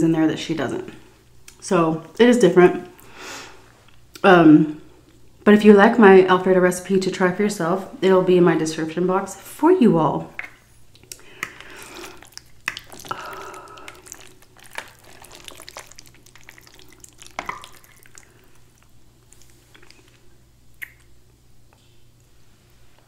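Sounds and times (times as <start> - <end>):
fork stirring pasta in sauce: 11.1 - 18.6.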